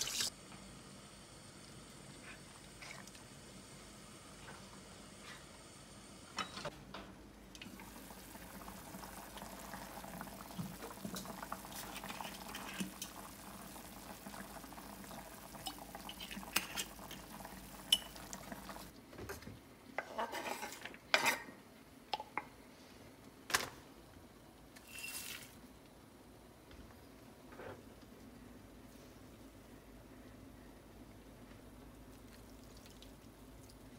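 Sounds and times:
pot bubbling: 0:07.6 - 0:19.0, 0:31.0 - 0:33.9.

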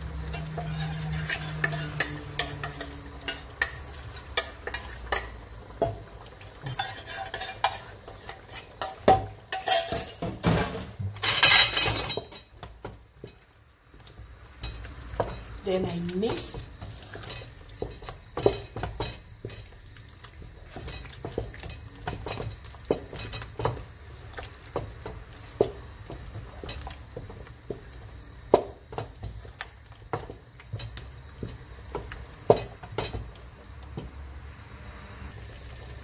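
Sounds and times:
wooden spoon stirring thick soup: 0:00.0 - 0:09.6, 0:12.2 - 0:34.3.

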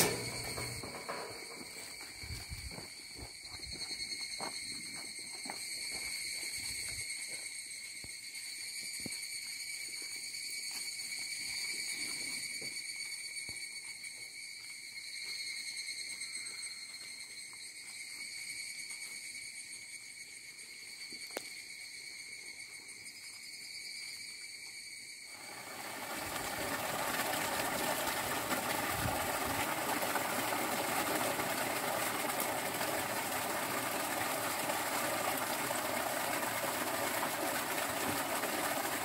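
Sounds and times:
cicadas buzzing: 0:00.0 - 0:39.0.

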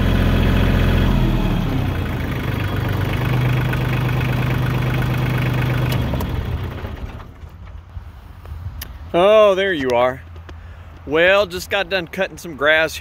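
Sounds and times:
tractor diesel engine idling: 0:00.0 - 0:08.4.

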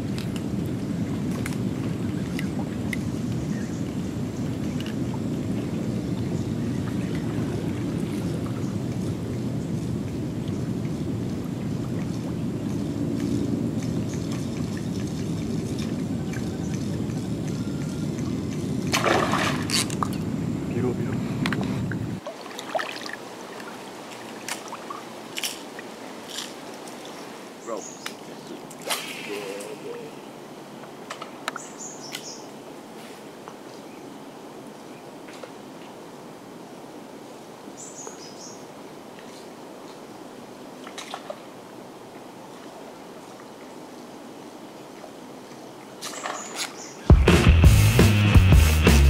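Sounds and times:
steady low rumble: 0:00.0 - 0:22.2
outdoor background hiss: 0:00.0 - 0:49.0
loud fish splash: 0:18.9 - 0:19.8.

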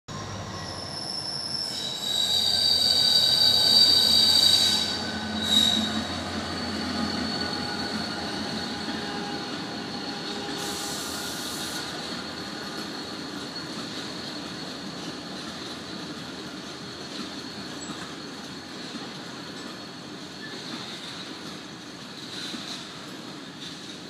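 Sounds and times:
freight train rolling past: 0:00.1 - 0:24.0
train wheels squealing: 0:00.1 - 0:24.0.

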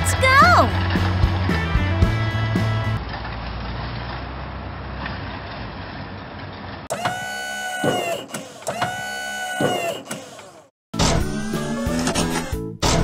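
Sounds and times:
cartoon truck engine rumbling: 0:00.0 - 0:13.0.

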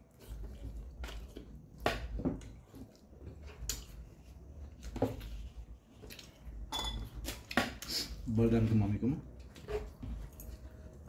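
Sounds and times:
chewing and mouth sounds: 0:00.0 - 0:08.2.

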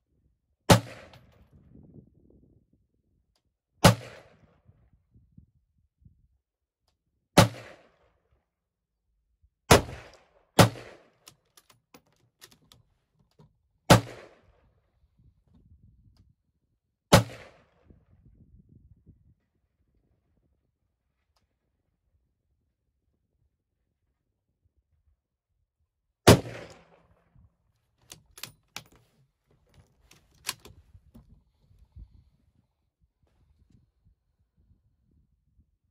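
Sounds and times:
rifle shots echoing: 0:09.7 - 0:11.1, 0:13.9 - 0:14.4, 0:26.3 - 0:27.0
rifle bolt clicks: 0:11.2 - 0:13.5, 0:28.0 - 0:30.8.

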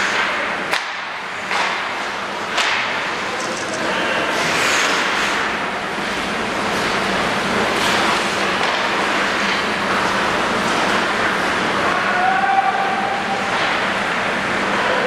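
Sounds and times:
hockey stick hitting puck: 0:00.1 - 0:01.9, 0:02.5 - 0:03.6
ice skates scraping on ice: 0:03.8 - 0:05.4.

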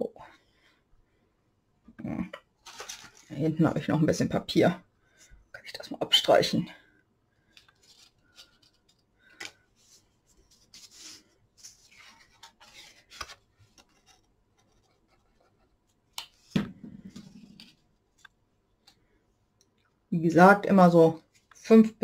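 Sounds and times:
cardstock rustling and rubbing: 0:02.6 - 0:03.3, 0:07.6 - 0:09.0, 0:09.7 - 0:18.0.

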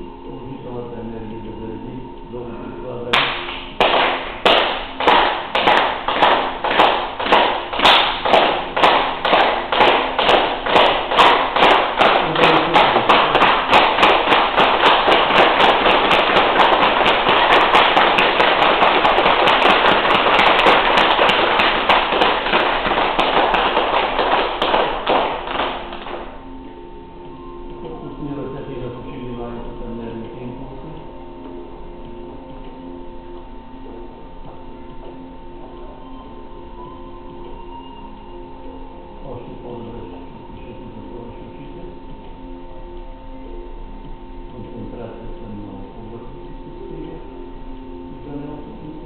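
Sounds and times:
hands clapping: 0:03.1 - 0:26.4.

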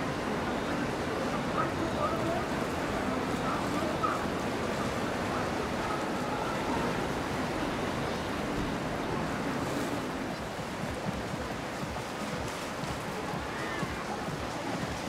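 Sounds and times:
rushing water: 0:00.0 - 0:15.0
wind: 0:00.0 - 0:15.0.

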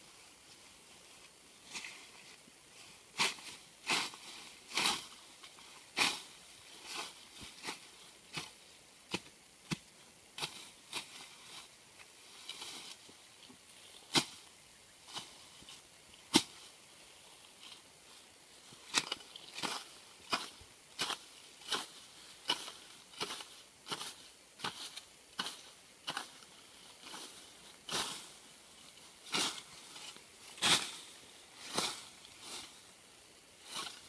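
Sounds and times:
swish of cut weeds: 0:29.2 - 0:32.8.

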